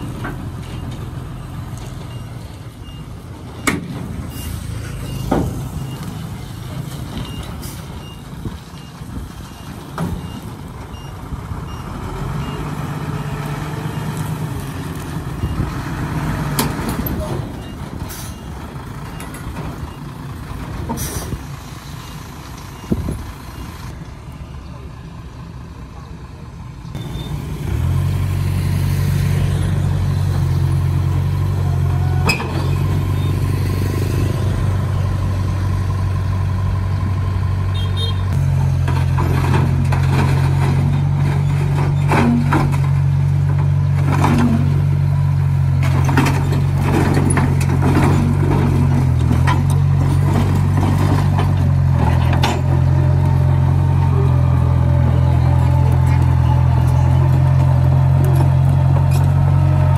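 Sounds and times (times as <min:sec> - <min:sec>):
tracks clanking on steel ramps: 0:00.0 - 0:11.8, 0:15.3 - 0:22.0, 0:31.4 - 0:33.4, 0:38.3 - 0:59.9
bulldozer diesel engine running: 0:00.0 - 0:59.9.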